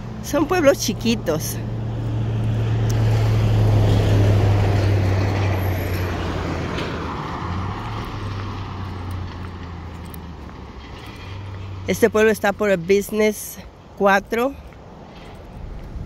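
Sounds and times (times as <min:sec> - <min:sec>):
car passing by: 0:00.0 - 0:12.3.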